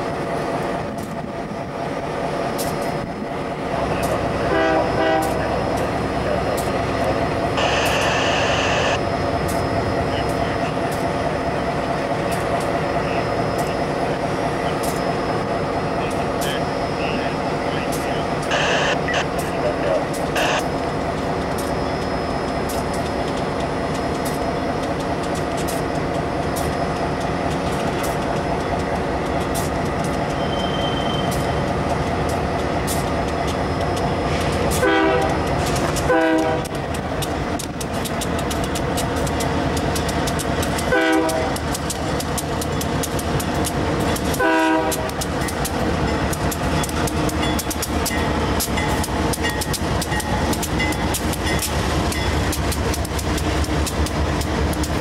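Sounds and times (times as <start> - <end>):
freight train engines droning: 0.0 - 55.0
train horn blasts: 4.4 - 5.6, 34.7 - 35.4, 36.1 - 36.8, 40.9 - 41.6, 44.4 - 45.2.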